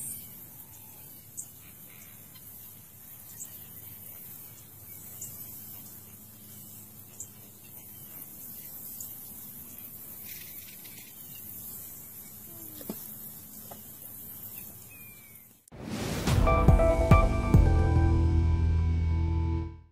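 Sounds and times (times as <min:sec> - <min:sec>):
low hum: 0:15.8 - 0:19.8.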